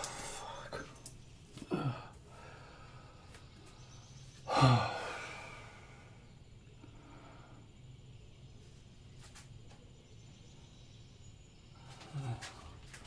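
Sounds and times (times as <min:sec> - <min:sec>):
man sighing: 0:01.6 - 0:02.5, 0:04.5 - 0:05.8.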